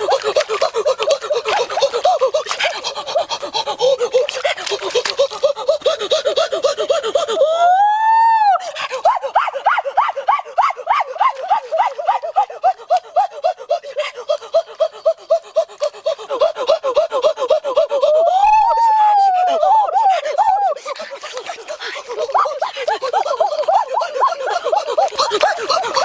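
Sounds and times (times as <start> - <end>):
person gasping rapidly: 0.0 - 7.6, 8.6 - 26.0
person saying ooh: 18.0 - 20.8.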